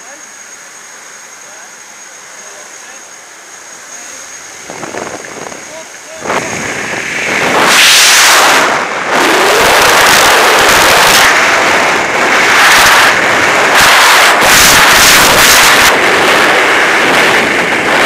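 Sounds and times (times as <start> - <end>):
wind rushing over microphone: 4.4 - 18.0.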